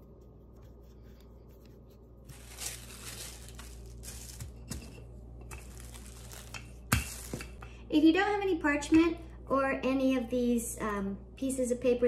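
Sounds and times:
parchment paper crinkling: 1.0 - 7.6.

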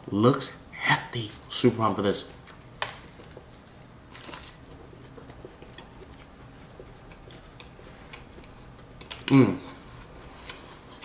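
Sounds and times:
wet chewing sounds: 2.3 - 11.0.

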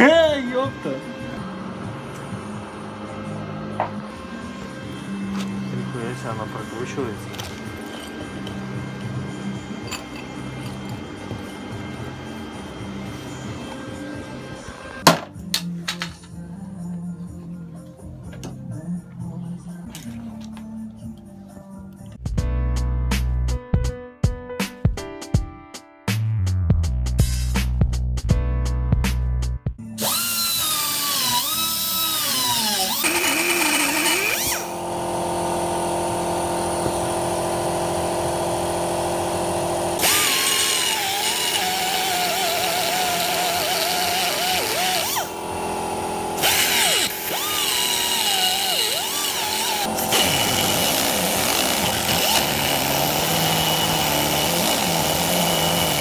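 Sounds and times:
rotary tool grinding metal: 30.0 - 56.0.

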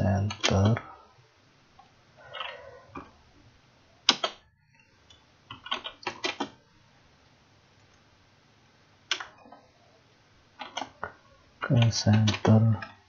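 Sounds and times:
keyboard keystrokes: 4.1 - 4.4, 5.5 - 6.6, 11.8 - 12.9.

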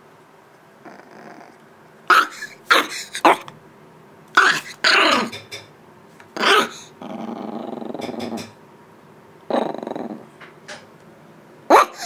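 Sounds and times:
puppy growling: 0.8 - 3.5, 4.4 - 5.4, 6.4 - 8.6, 9.5 - 10.4
puppy barking: 2.1 - 3.5, 4.4 - 5.3, 6.4 - 6.9, 11.7 - 12.0.

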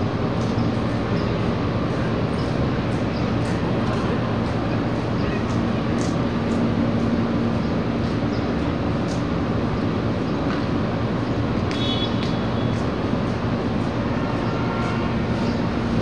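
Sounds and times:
engine hum: 0.0 - 16.0
rumble of passing vehicles: 0.0 - 16.0.

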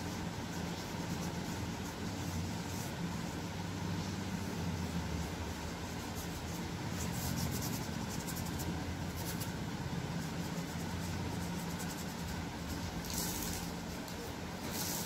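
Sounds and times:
paintbrush scratching on paper: 0.0 - 15.0
steady low hum: 0.0 - 15.0.

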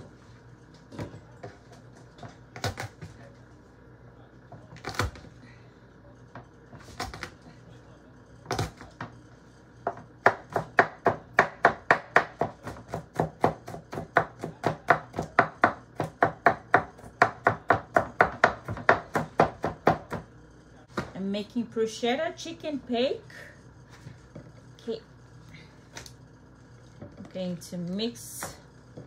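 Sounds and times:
knife chopping on wooden board: 9.9 - 20.2.

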